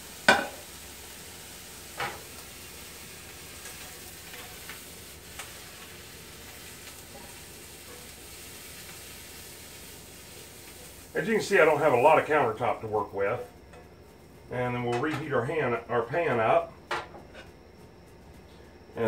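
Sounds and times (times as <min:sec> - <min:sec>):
ham sizzling in a skillet: 0:00.0 - 0:14.1.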